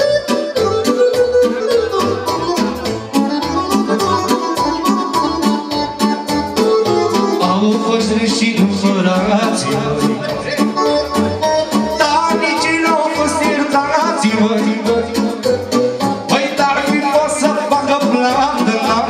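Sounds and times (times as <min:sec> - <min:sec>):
electronic keyboard party music: 0:00.0 - 0:19.0
pulsing bass beat: 0:00.0 - 0:19.0
man singing into a microphone: 0:07.3 - 0:11.2, 0:11.9 - 0:19.0.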